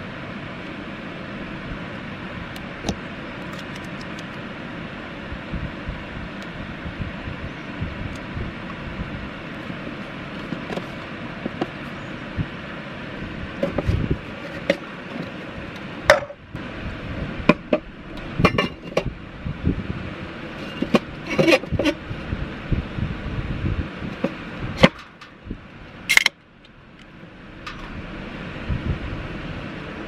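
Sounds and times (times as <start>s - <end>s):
metal cans clinking and scraping: 18.4s - 19.1s, 20.6s - 22.0s.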